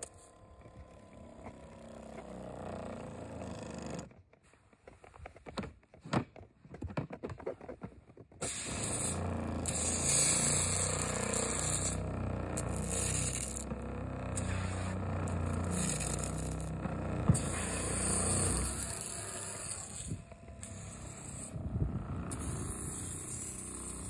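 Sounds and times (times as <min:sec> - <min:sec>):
pump humming: 0:00.0 - 0:04.0, 0:08.5 - 0:24.0.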